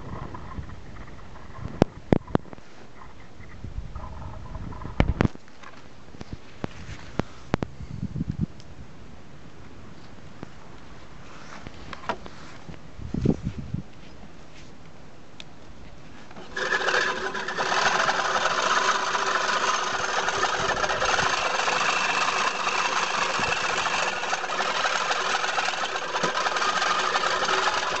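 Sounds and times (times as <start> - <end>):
push mower whirring rattle: 16.3 - 28.0.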